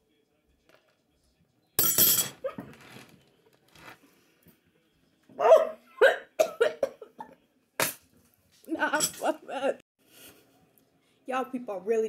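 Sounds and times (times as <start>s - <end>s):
woman coughing: 6.0s - 7.1s.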